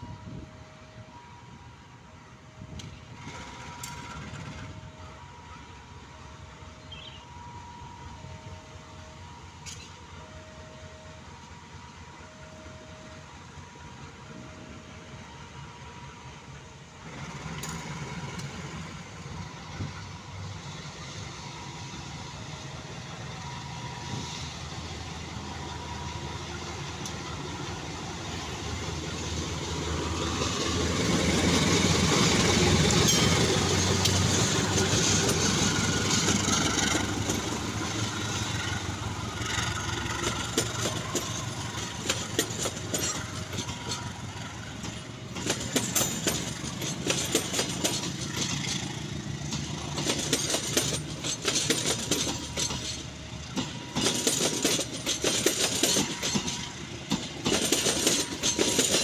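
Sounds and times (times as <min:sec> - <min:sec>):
diesel locomotive engine: 0:00.0 - 0:59.0
train wheels clattering over rails: 0:02.7 - 0:04.9, 0:17.0 - 0:59.0.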